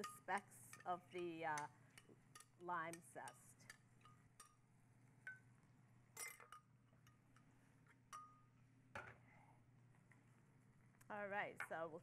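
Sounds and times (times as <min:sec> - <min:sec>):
spoon clinking on glass: 0:06.2 - 0:07.2, 0:08.1 - 0:08.5.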